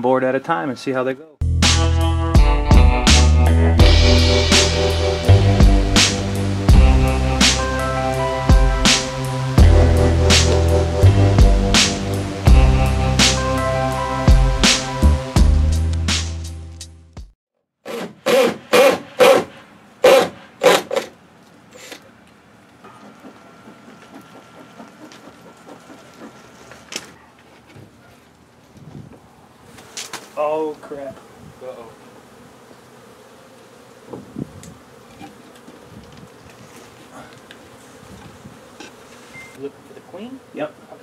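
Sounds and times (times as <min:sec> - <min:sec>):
background music: 0:01.4 - 0:17.3
bees buzzing: 0:03.8 - 0:15.8, 0:22.9 - 0:27.1, 0:29.6 - 0:41.0.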